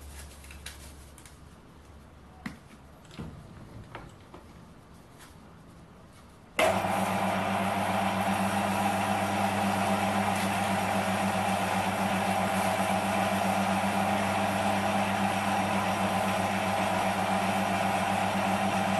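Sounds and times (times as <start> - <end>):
lathe motor hum: 6.6 - 18.9.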